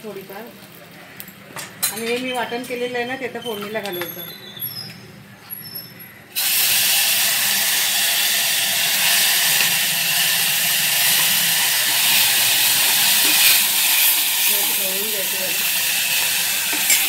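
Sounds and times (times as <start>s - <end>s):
spice paste sizzling in hot oil: 6.4s - 17.0s.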